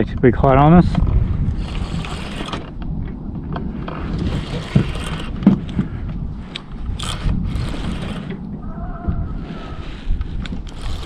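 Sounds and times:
wind rumbling on microphone: 0:00.0 - 0:11.0
fishing reel whirring: 0:01.6 - 0:02.7, 0:04.1 - 0:05.4, 0:06.5 - 0:08.4, 0:10.6 - 0:11.0
fishing reel clicks: 0:06.5 - 0:08.3.

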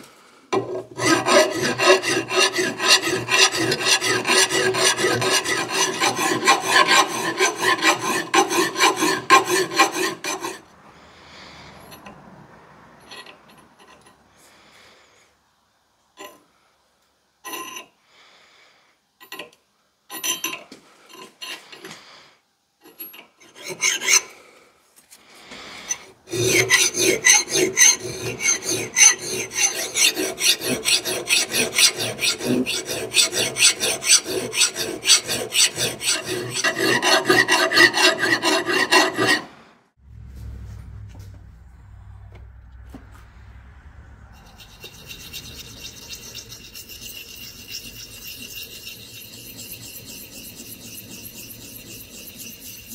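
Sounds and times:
hand file rasping on steel: 0:00.6 - 0:10.7, 0:23.4 - 0:24.4, 0:25.9 - 0:39.6, 0:44.4 - 0:52.9
diamond hone rubbing: 0:44.4 - 0:52.9.

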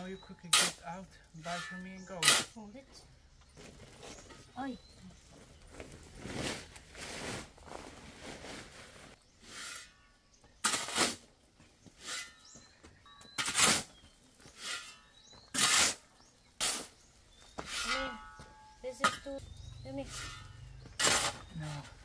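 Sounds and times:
spade digging into gravel: 0:00.0 - 0:02.6, 0:09.4 - 0:11.3, 0:12.0 - 0:12.5, 0:13.3 - 0:19.4, 0:20.0 - 0:22.0
faint bird chirps: 0:00.0 - 0:05.7, 0:11.9 - 0:22.0.

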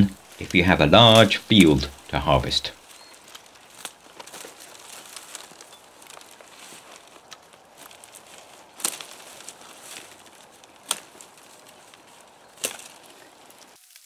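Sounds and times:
rustling of stems and litter: 0:00.0 - 0:14.0
blade snapping through stems: 0:03.1 - 0:14.0.

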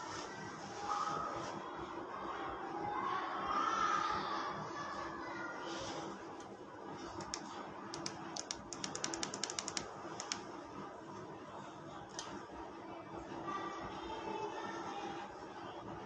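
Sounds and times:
faint steady hum: 0:00.0 - 0:16.0
keyboard typing: 0:07.1 - 0:10.5.

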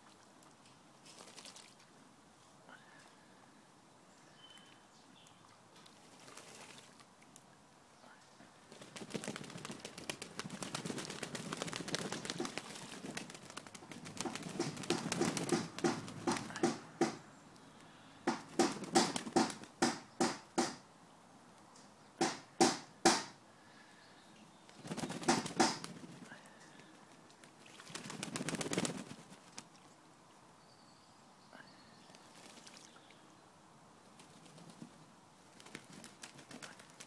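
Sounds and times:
pigeons splashing in water: 0:01.0 - 0:01.8, 0:05.9 - 0:07.0, 0:08.7 - 0:17.2, 0:24.8 - 0:29.7, 0:32.2 - 0:32.9, 0:35.6 - 0:37.0
wings fluttering: 0:01.0 - 0:01.8, 0:06.0 - 0:07.0, 0:08.7 - 0:17.2, 0:18.3 - 0:19.8, 0:24.7 - 0:29.8, 0:32.2 - 0:32.9, 0:34.2 - 0:37.0.

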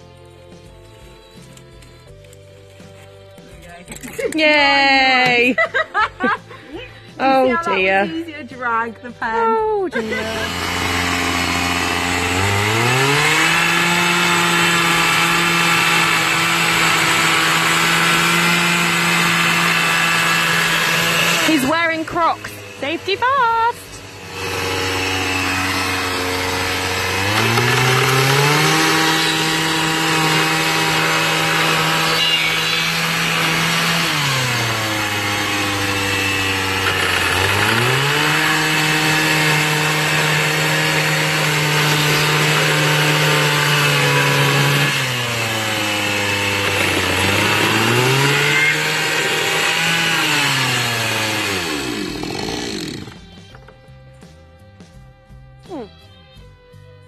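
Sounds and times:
chainsaw cutting wood: 0:10.0 - 0:53.8.

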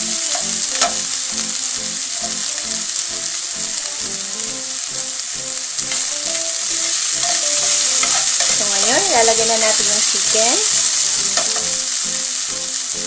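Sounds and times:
food sizzling in hot oil: 0:00.0 - 0:13.0
spatula stirring in pan: 0:00.0 - 0:13.0.

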